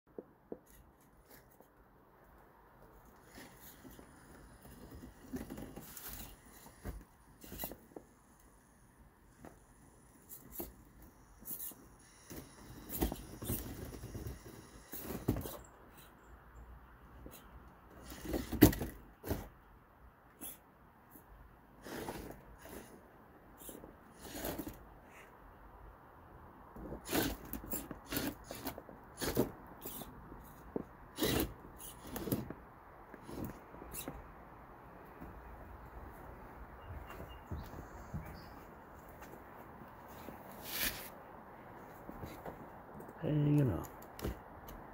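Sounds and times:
toy car scrabbling on wood: 0:03.0 - 0:08.6, 0:09.3 - 0:16.1, 0:17.2 - 0:19.6, 0:21.7 - 0:25.0, 0:26.8 - 0:34.3, 0:40.2 - 0:41.2.

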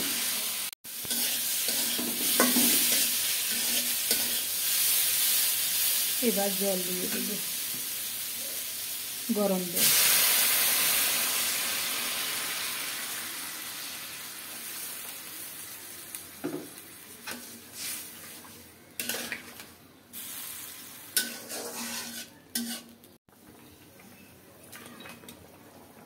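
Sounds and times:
loud sizzling in a pan: 0:00.0 - 0:23.2
spoon clinking and scraping pan: 0:01.0 - 0:04.5, 0:19.0 - 0:19.7, 0:21.2 - 0:23.0.

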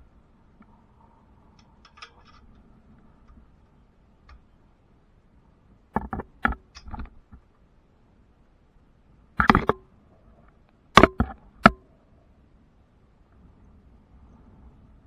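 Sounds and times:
faint ticks and clicks: 0:00.0 - 0:07.7
sharp knocks: 0:11.0 - 0:11.9.

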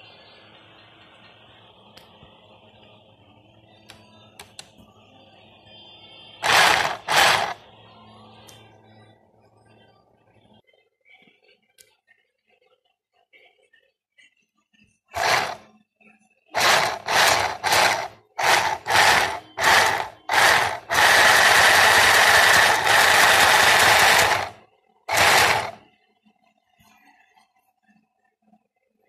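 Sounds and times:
sewing machine running: 0:06.4 - 0:07.6, 0:15.2 - 0:15.6, 0:16.6 - 0:25.8.

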